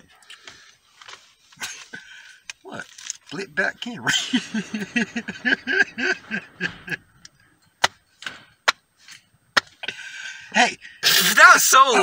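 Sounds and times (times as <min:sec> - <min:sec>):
man laughing hard: 0:04.1 - 0:07.2
sharp knocks: 0:07.8 - 0:08.8.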